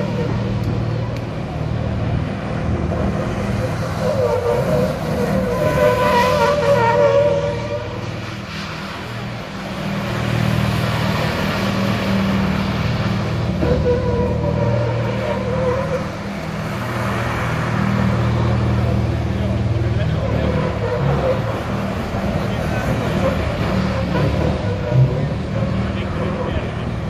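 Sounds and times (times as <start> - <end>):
truck diesel engine revving: 0.0 - 27.0
tyres squealing: 2.9 - 27.0.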